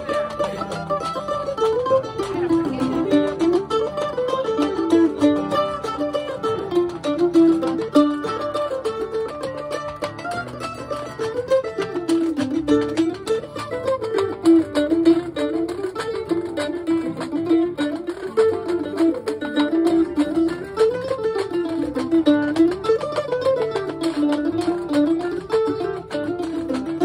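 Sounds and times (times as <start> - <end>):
picked acoustic guitar melody: 0.0 - 27.0
scraped washboard rhythm: 0.0 - 27.0.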